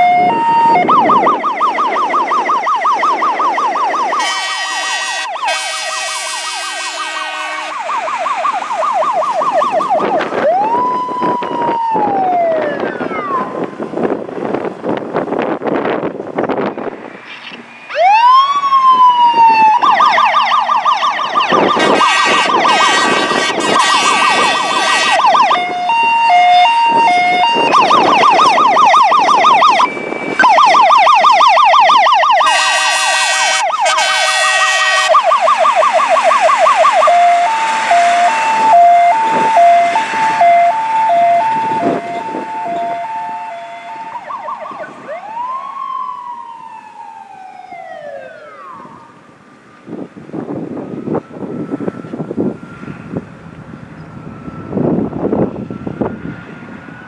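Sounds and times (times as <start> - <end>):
fire truck siren wailing and yelping: 0.0 - 57.0
truck air horn blasts: 4.2 - 7.9, 21.7 - 25.4, 32.4 - 35.2.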